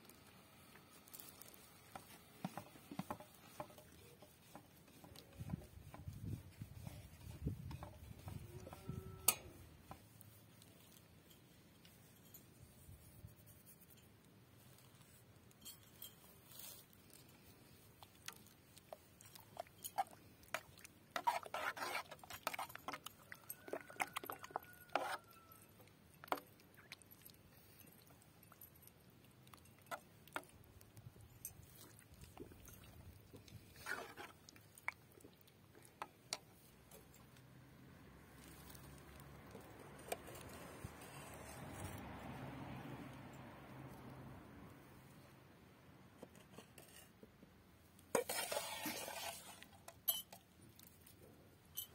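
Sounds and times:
masher squelching thick mash: 0:00.0 - 0:11.2, 0:16.4 - 0:42.4
spoon tapping and scraping pot: 0:01.2 - 0:10.2, 0:18.4 - 0:27.0, 0:38.4 - 0:41.5, 0:48.1 - 0:50.5.

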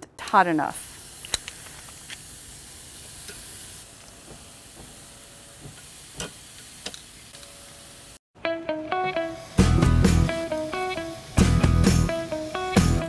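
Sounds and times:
meat sizzling on a grill: 0:00.8 - 0:03.9, 0:04.5 - 0:08.2.

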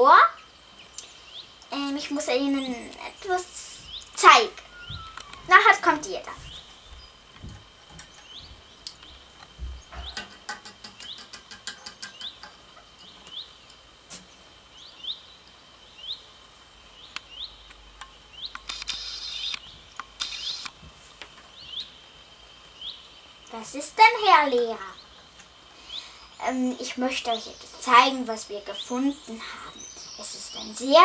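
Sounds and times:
short rising chirp: 0:04.6 - 0:05.5.

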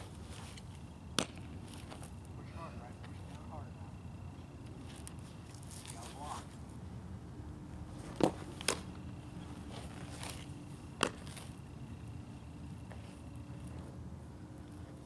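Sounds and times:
softball smacking into mitt: 0:01.2 - 0:01.5, 0:08.1 - 0:08.9, 0:11.0 - 0:11.4.

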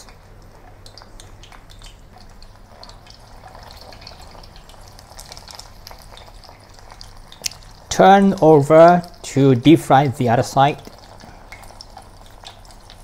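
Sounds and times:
oil sizzling and popping: 0:00.0 - 0:13.0.

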